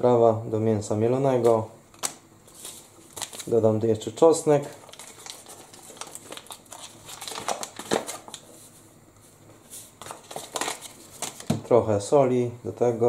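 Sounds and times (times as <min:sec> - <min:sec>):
spice packet rustling: 0:02.5 - 0:03.6, 0:04.6 - 0:08.7, 0:09.8 - 0:11.5.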